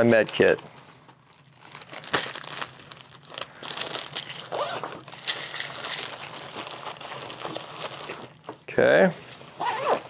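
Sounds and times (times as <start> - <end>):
sack crinkling and rustling: 1.4 - 8.4, 9.5 - 10.0.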